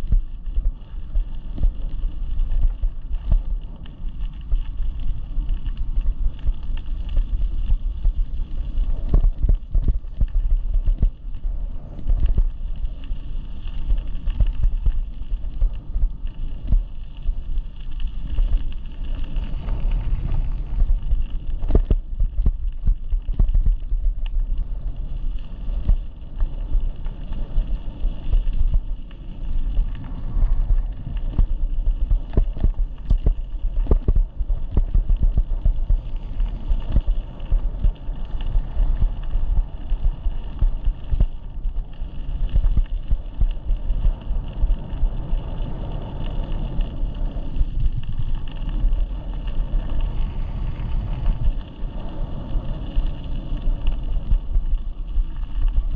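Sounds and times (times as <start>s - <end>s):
wind buffeting microphone: 6.1s - 13.5s, 18.7s - 42.0s.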